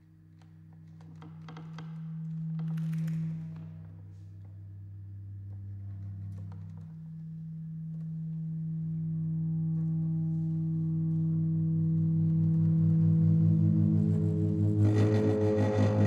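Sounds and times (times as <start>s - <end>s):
pulsing low tone: 4.8s - 16.0s
string instrument feedback drone: 4.8s - 16.0s.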